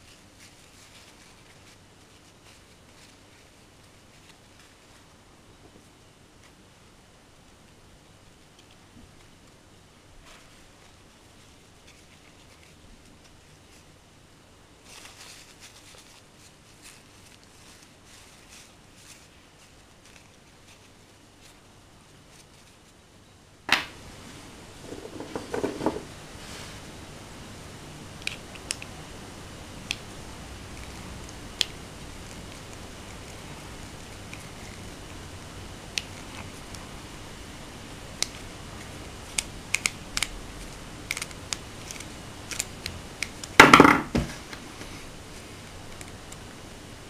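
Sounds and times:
clatter and rustling: 24.8s - 26.1s.

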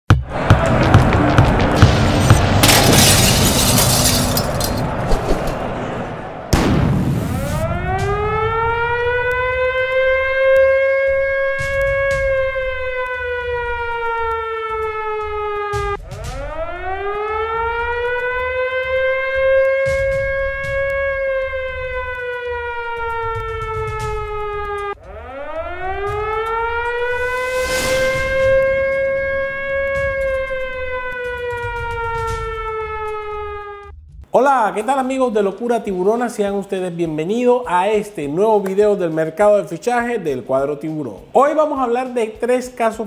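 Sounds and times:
air raid siren wailing: 0.1s - 33.9s.

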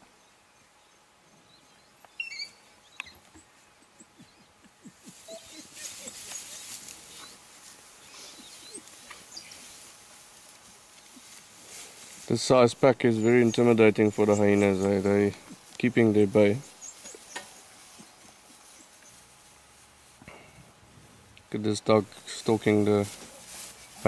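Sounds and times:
wild dogs chirping and squeaking: 1.4s - 19.6s
rustling dry grass: 4.8s - 24.0s.

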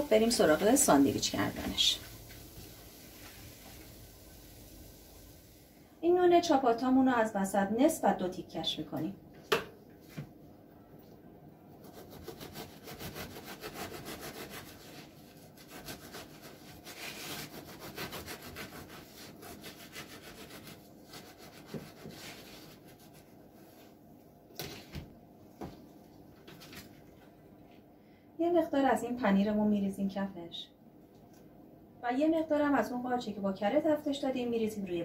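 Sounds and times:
bread knife sawing crusty loaf: 11.8s - 22.8s.

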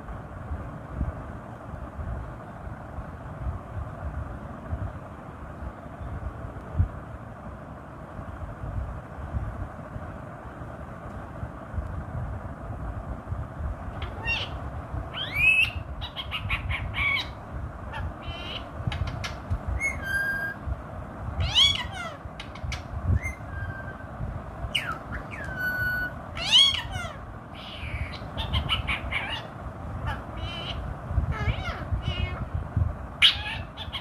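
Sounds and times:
steady low rumble: 0.0s - 34.0s
parrot calls and chatter: 13.9s - 20.6s, 21.4s - 24.1s, 24.7s - 32.6s, 33.2s - 34.0s.

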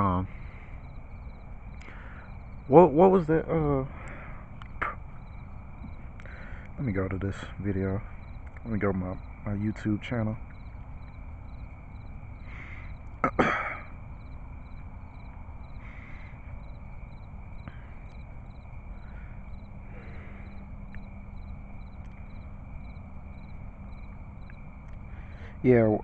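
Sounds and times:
crickets chirping: 0.0s - 26.0s
high insect hum: 0.0s - 26.0s
sharp clicks: 8.4s - 8.7s.

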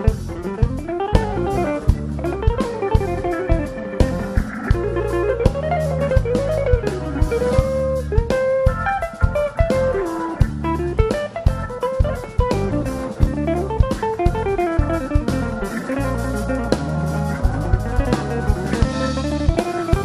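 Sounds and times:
drum kit: 0.0s - 20.0s
electric bass: 0.0s - 20.0s
electric guitar melody: 0.0s - 20.0s.

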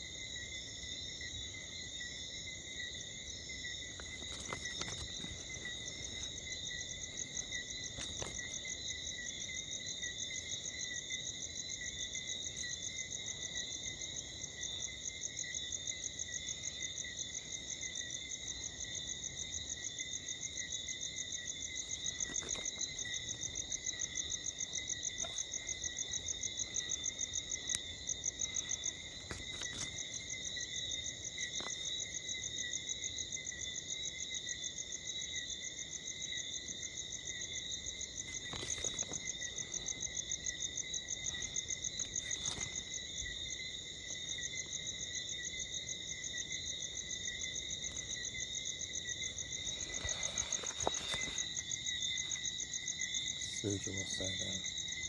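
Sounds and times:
animals trilling at night: 0.0s - 55.0s.

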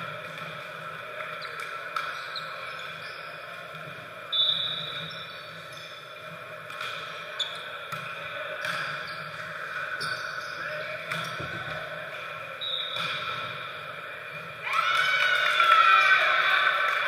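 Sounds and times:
murmur of room noise: 0.0s - 17.0s
referee's whistle blast: 4.3s - 5.1s, 12.6s - 13.2s.

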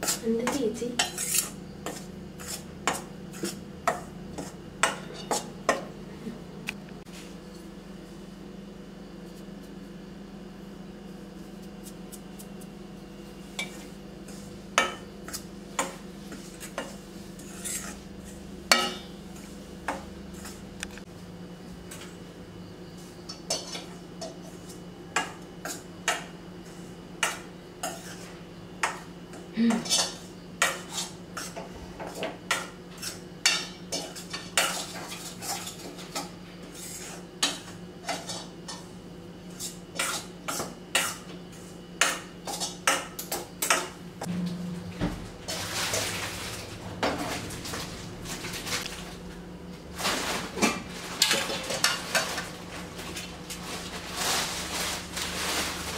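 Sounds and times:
metal spoon scraping a pan: 0.0s - 5.5s, 13.6s - 19.6s, 27.3s - 28.4s, 29.8s - 38.8s, 39.5s - 43.0s
steady low hum: 0.0s - 55.9s.

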